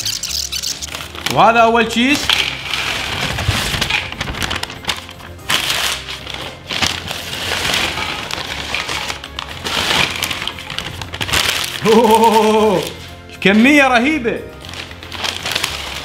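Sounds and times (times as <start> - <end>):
background music: 0.0 - 16.0
paper rustling: 0.0 - 16.0.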